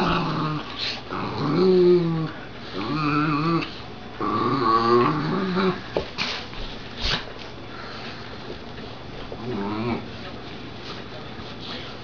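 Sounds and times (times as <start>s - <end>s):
puppy growling: 0.0s - 6.0s, 9.3s - 10.1s.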